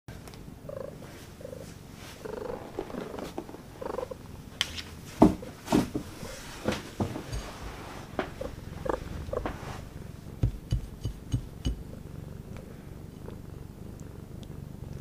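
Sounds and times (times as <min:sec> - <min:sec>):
cat purring: 0:00.2 - 0:15.0
knocks and thumps: 0:05.2 - 0:09.6, 0:10.4 - 0:11.9.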